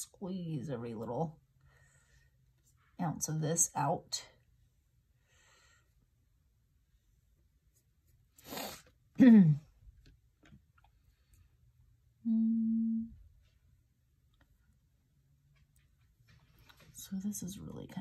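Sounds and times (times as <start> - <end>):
woman breathing: 1.6 - 2.5, 5.1 - 6.1
woman humming: 12.2 - 13.2.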